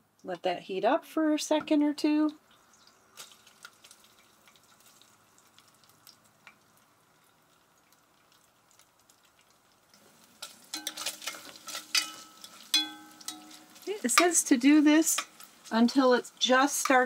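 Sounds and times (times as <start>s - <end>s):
bacon sizzling in pot: 0.4s - 17.0s
spoon scraping pot: 10.4s - 14.4s.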